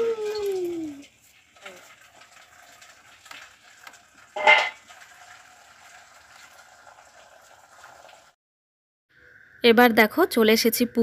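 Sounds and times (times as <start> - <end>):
pumpkin piece clattering on metal plate: 4.4 - 4.8.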